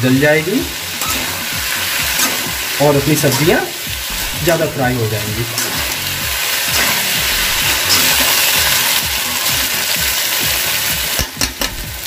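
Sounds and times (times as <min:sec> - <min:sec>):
noodles sizzling in a pan: 0:00.0 - 0:12.0
utensil scraping a pan: 0:01.0 - 0:04.6, 0:05.3 - 0:09.7.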